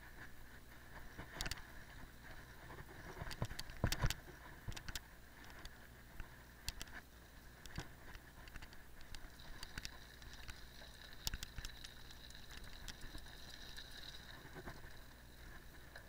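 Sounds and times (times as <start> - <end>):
bike clicks and rattles: 1.1 - 1.7, 2.6 - 5.8, 7.7 - 15.1.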